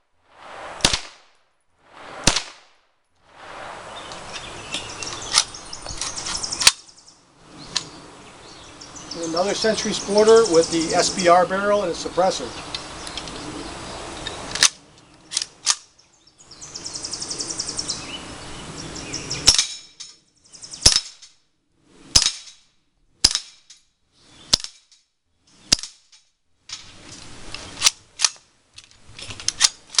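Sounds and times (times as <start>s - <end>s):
suppressed rifle shots: 0.7s - 1.4s, 2.0s - 2.8s.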